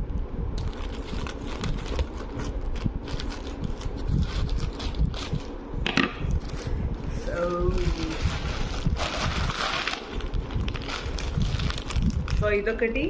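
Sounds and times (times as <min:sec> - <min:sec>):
low rumble: 0:00.0 - 0:13.0
plastic crinkling: 0:00.6 - 0:05.6, 0:07.4 - 0:12.6.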